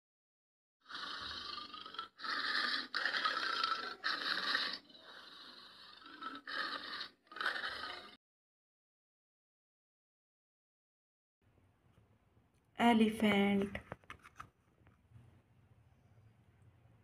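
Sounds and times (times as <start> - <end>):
tiger growling: 0.9 - 8.2.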